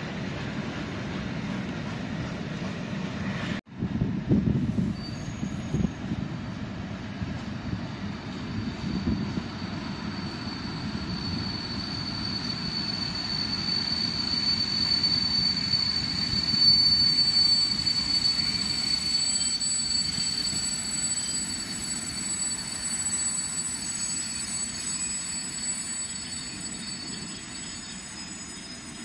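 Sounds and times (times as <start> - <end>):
freight train rumbling on rails: 0.0 - 29.0
high-pitched wheel squeal: 4.7 - 6.0, 8.2 - 29.0.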